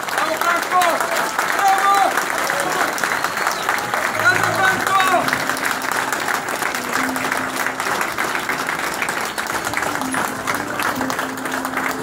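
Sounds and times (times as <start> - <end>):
crowd applauding: 0.0 - 12.0
simple background music tune: 3.8 - 12.0.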